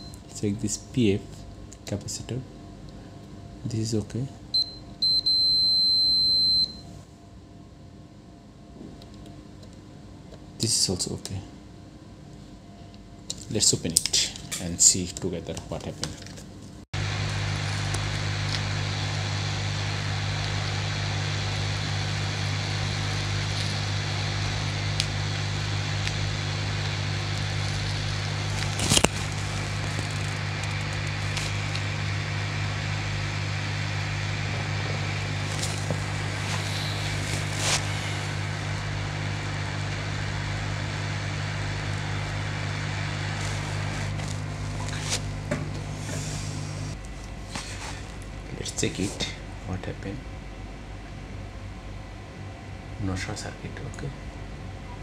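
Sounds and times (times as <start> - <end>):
hot air station blowing: 17.0 - 48.1.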